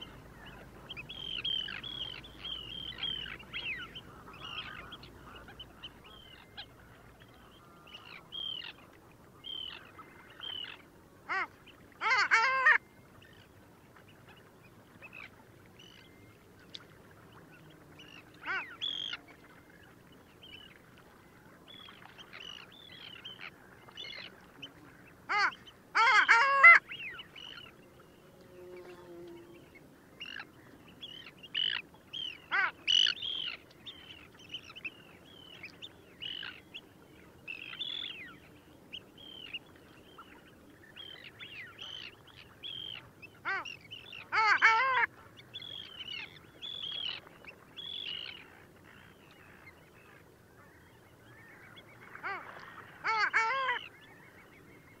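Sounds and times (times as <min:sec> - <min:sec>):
ducks calling: 0:00.0 - 0:08.8, 0:25.3 - 0:27.8, 0:30.2 - 0:34.8, 0:41.0 - 0:47.2, 0:51.6 - 0:53.9.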